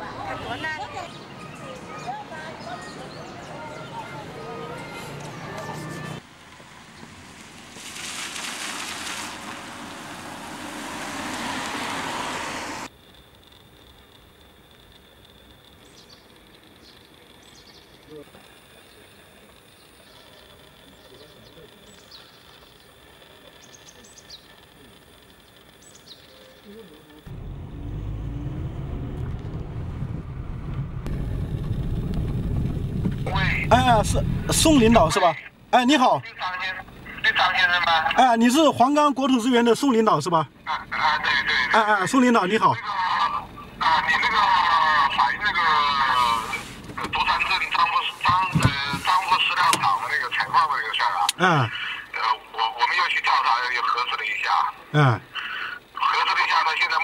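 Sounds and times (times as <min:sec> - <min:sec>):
birds chirping: 0:00.0 - 0:07.2, 0:14.8 - 0:27.3, 0:33.2 - 0:57.0
car driving along road: 0:03.6 - 0:12.9, 0:26.7 - 0:35.7, 0:40.5 - 0:52.2.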